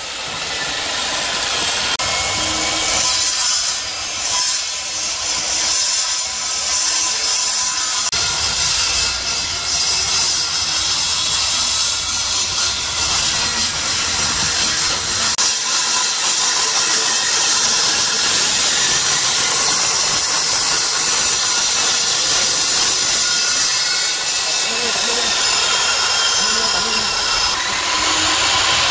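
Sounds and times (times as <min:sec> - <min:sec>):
circular saw cutting metal: 0:00.0 - 0:28.9.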